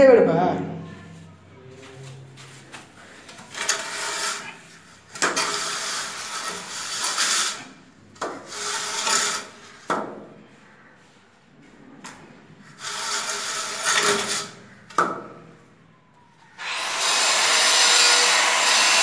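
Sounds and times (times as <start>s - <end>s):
trowel scraping mortar: 3.4s - 9.8s, 12.6s - 14.8s.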